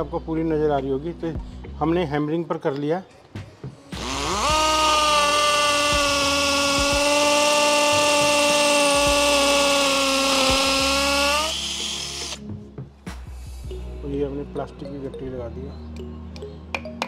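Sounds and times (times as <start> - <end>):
hammer drill drilling into wall: 4.0 - 12.4.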